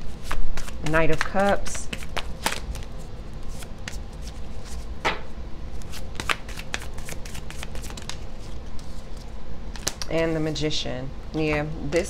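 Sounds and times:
cards being shuffled: 0:00.1 - 0:04.9, 0:05.8 - 0:10.1.

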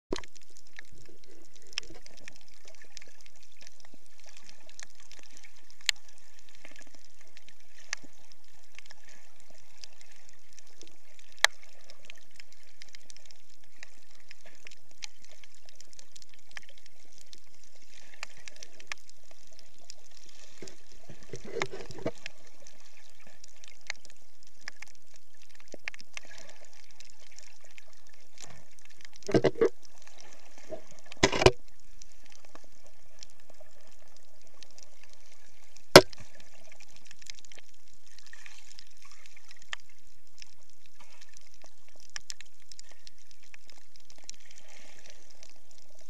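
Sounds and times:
low burble of moving water: 0:00.1 - 0:46.0
small clicks and crackles: 0:00.1 - 0:46.0.

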